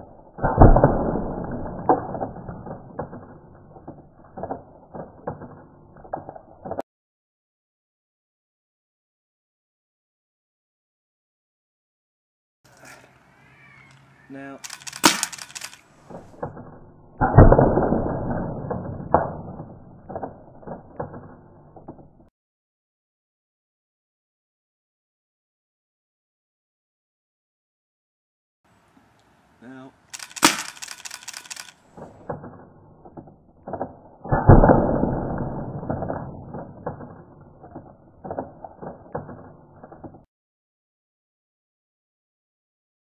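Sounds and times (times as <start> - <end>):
paintball hitting and splattering: 0.3 - 6.8, 14.7 - 22.0, 30.2 - 40.2
sharp click: 14.6 - 15.8, 30.1 - 32.6.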